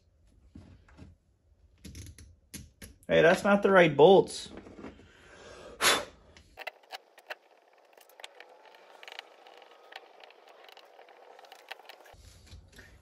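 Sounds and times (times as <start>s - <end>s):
screwdriver clicking and scraping: 6.6s - 12.2s.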